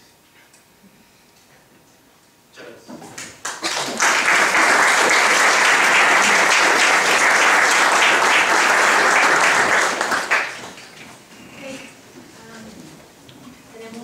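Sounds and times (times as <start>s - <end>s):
audience applauding: 3.4s - 11.0s.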